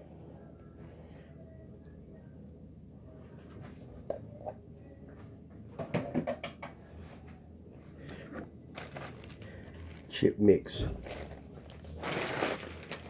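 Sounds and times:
low steady hum: 0:00.0 - 0:13.0
kitchen items knocking and clattering: 0:05.8 - 0:06.8.

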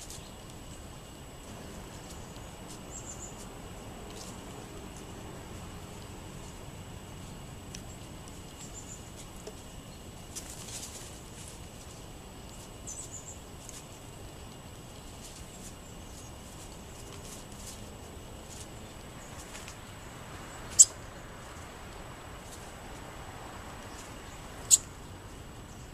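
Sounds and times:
steady hiss: 0:00.0 - 0:25.9
songbird chip calls: 0:02.3 - 0:03.5, 0:20.6 - 0:21.2, 0:23.9 - 0:25.0.

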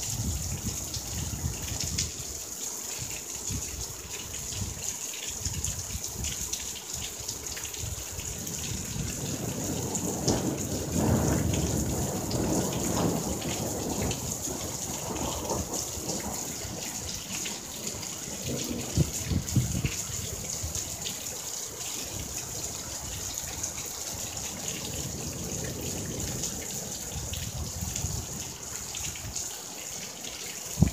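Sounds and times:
heavy rain falling: 0:00.0 - 0:30.9.

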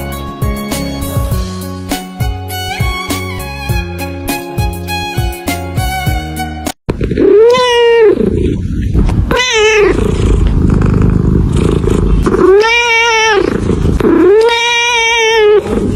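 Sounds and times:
cat purring: 0:07.0 - 0:14.5, 0:15.3 - 0:15.9
cat meowing: 0:07.1 - 0:08.6, 0:09.3 - 0:10.0, 0:12.3 - 0:15.9.

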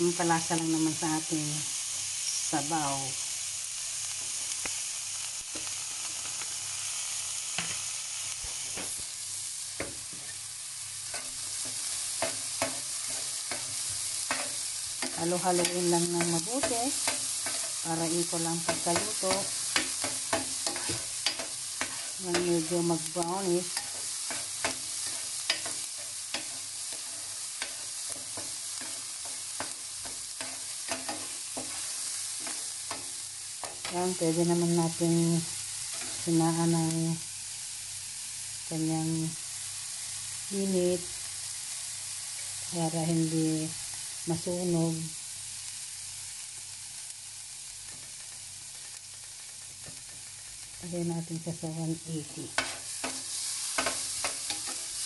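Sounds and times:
food sizzling in a skillet: 0:00.0 - 0:55.0
metal spoon scraping a pan: 0:11.1 - 0:22.8, 0:23.6 - 0:34.2, 0:35.9 - 0:36.3, 0:52.5 - 0:55.0.

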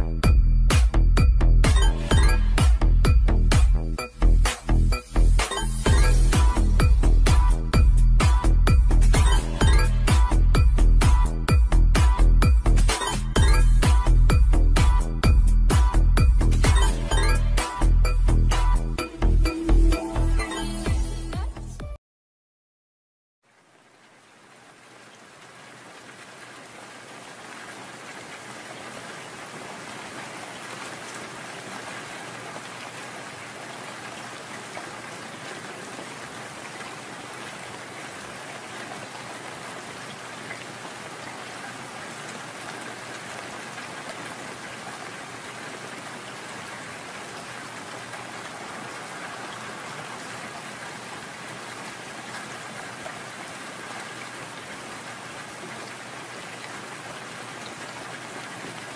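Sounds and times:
steady rain: 0:23.4 - 0:58.9.

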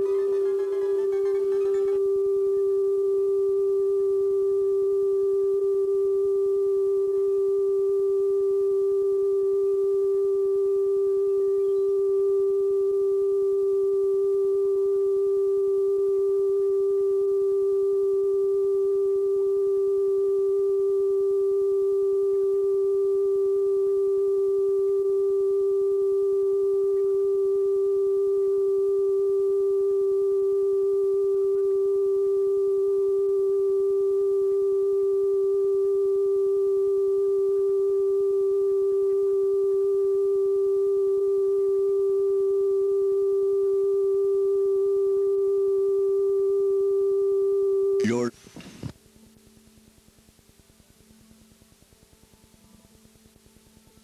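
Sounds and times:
steady test tone: 0:00.0 - 0:48.9.

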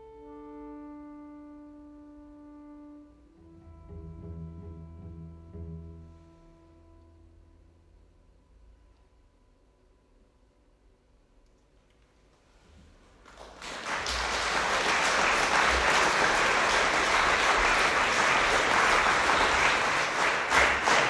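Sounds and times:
audience applauding: 0:13.2 - 0:21.0.

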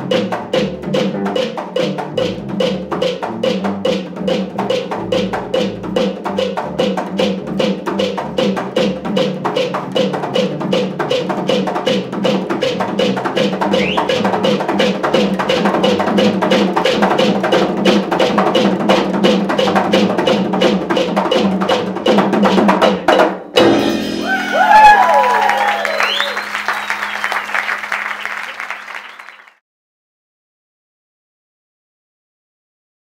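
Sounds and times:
double bass and hand percussion: 0:00.0 - 0:25.4
audience applause and cheers: 0:24.1 - 0:29.6.

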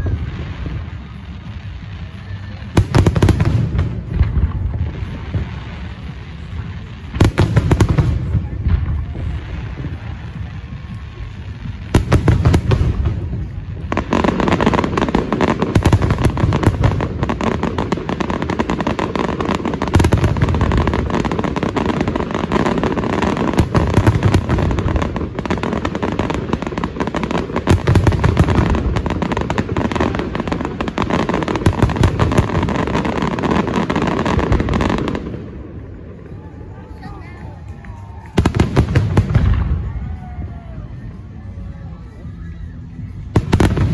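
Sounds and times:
fireworks pops and crackles: 0:00.0 - 0:43.9
heavy low firework booms: 0:02.7 - 0:36.3.

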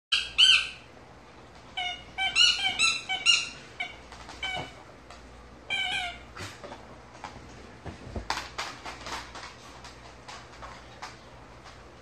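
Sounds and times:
dog whining and yelping: 0:01.7 - 0:04.8, 0:05.7 - 0:06.6.

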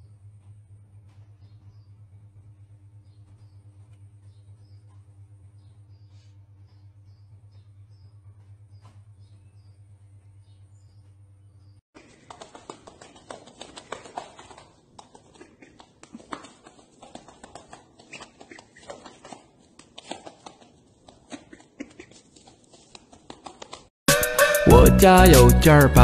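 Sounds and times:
goose feet tapping on pavement: 0:12.0 - 0:23.9
loud music with singing: 0:24.1 - 0:26.0.

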